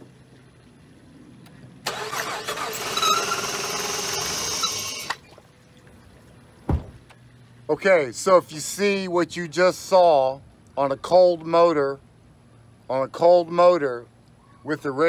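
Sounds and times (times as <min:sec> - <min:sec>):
coolant gushing spray: 0:01.9 - 0:05.4.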